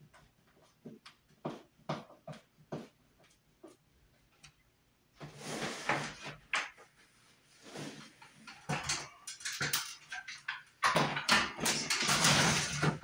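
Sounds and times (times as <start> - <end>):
scraping and rustling: 5.2 - 10.5, 11.6 - 13.0.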